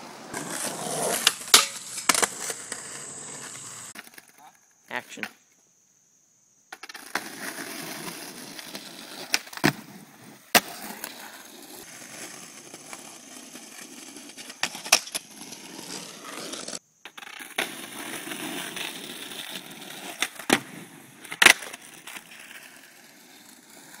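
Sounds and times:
skateboard wheels rolling on asphalt: 0:00.0 - 0:05.6, 0:06.7 - 0:24.0
skateboard clacks: 0:00.8 - 0:04.3.

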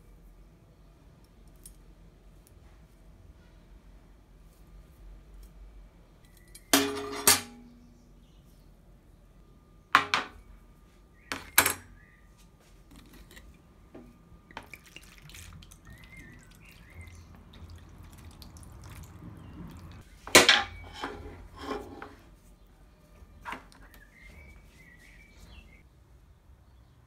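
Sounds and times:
vinegar pouring and splashing: 0:14.5 - 0:20.1.

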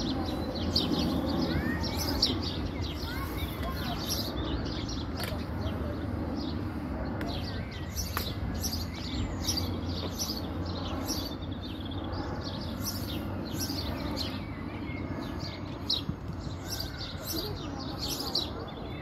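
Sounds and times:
low background rumble: 0:00.0 - 0:18.9
small birds chirping: 0:00.0 - 0:19.0.

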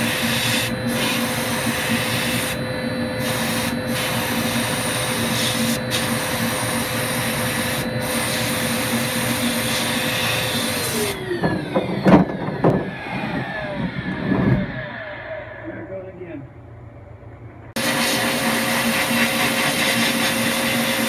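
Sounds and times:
sandblasting hiss: 0:00.0 - 0:02.6, 0:03.2 - 0:11.0, 0:17.8 - 0:21.0
motor hum: 0:00.0 - 0:21.0.

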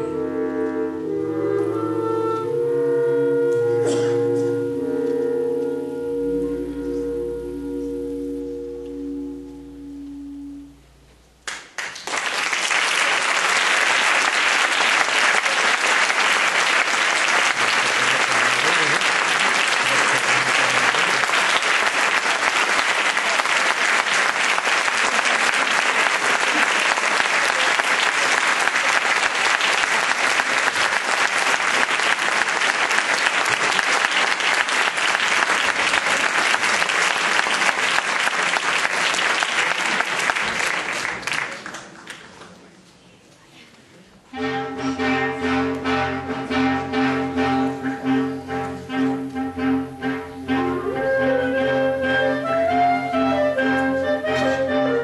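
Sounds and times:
clarinet ensemble chord: 0:00.0 - 0:11.4, 0:44.3 - 0:55.0
audience applauding: 0:11.4 - 0:42.6.

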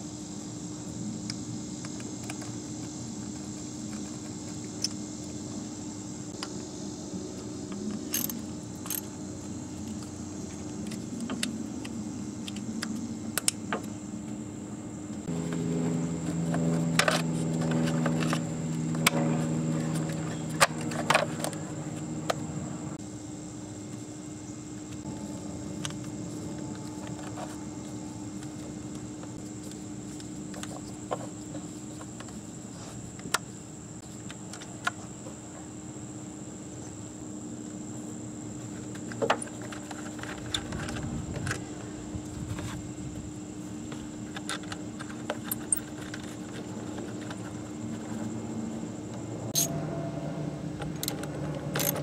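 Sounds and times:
faint steady hum: 0:00.0 - 0:52.0
ratchet clinking on bolt: 0:51.0 - 0:52.0.

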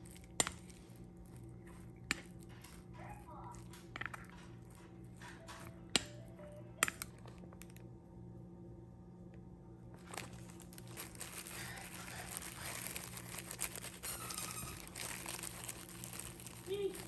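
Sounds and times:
plastic wrap crinkling: 0:00.0 - 0:05.6, 0:09.9 - 0:17.0
soft background music: 0:00.0 - 0:07.8.

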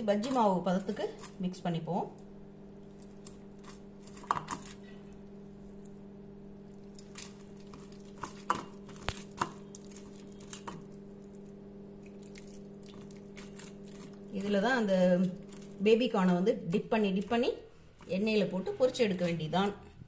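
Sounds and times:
steady low hum: 0:00.0 - 0:20.0
batter squelching: 0:02.8 - 0:19.5
water pouring: 0:12.0 - 0:13.4.

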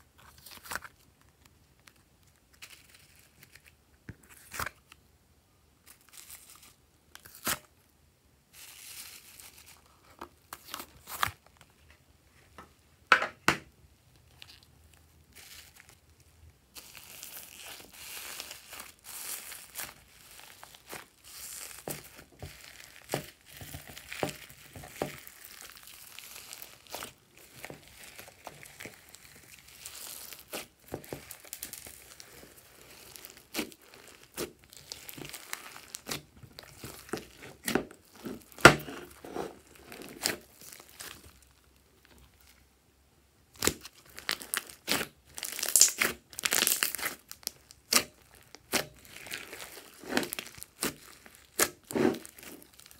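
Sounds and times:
slime clicking and popping: 0:43.6 - 0:49.3.

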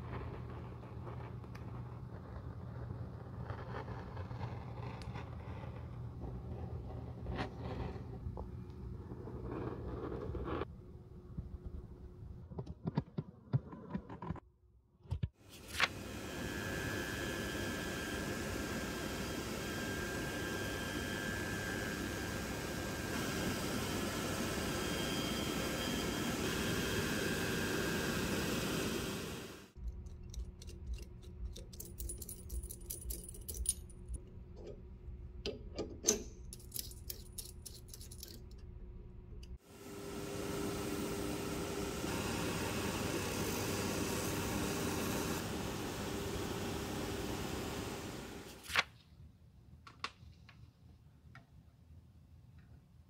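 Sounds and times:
edge-trimming machine running: 0:15.6 - 0:29.8, 0:39.6 - 0:48.6
metallic clicks and clinks: 0:29.8 - 0:34.3, 0:35.9 - 0:38.7.

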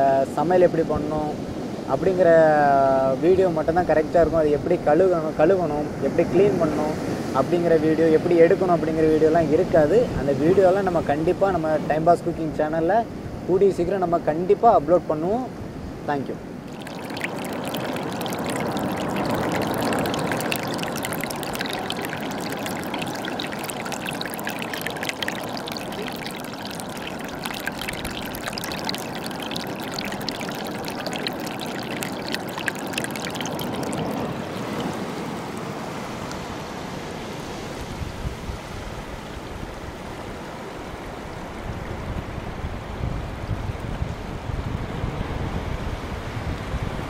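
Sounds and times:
sea wash with low rumble: 0:15.6 - 0:47.0
water trickling over rocks: 0:16.6 - 0:35.7.

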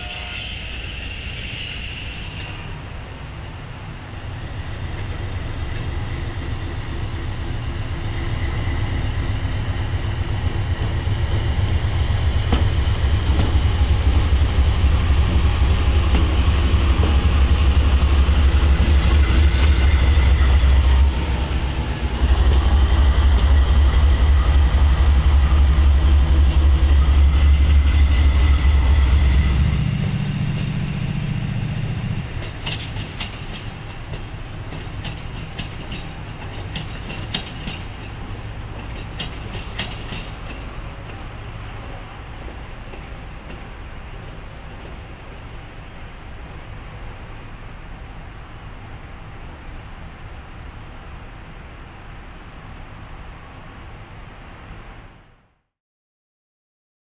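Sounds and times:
rail clicks: 0:00.0 - 0:03.6, 0:04.4 - 0:46.2
passenger train rumbling past: 0:00.0 - 0:55.3.

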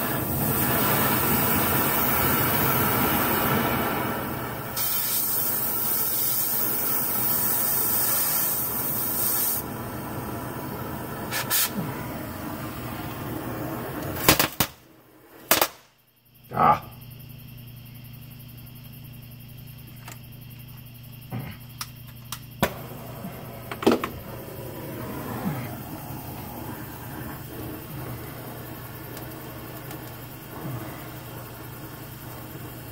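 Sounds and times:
cutting torch hissing: 0:00.0 - 0:15.7, 0:22.6 - 0:32.9.

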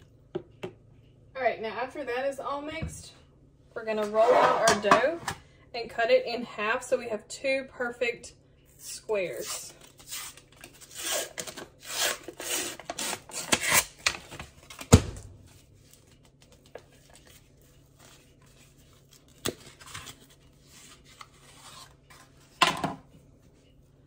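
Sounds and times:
paper wrapper tearing and rustling: 0:09.8 - 0:14.8, 0:15.5 - 0:22.0.

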